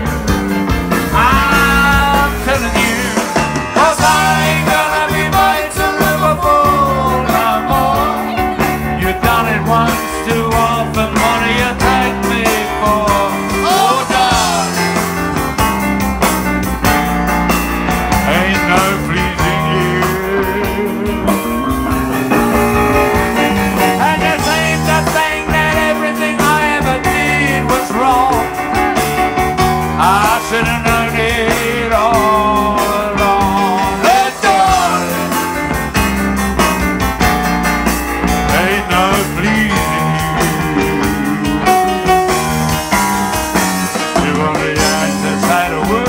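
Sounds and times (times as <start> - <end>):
drums: 0.0 - 46.0
electric bass guitar: 0.0 - 46.0
piano: 0.0 - 46.0
man singing: 0.9 - 15.1, 18.1 - 22.4, 23.3 - 35.7, 38.3 - 41.9, 43.9 - 46.0.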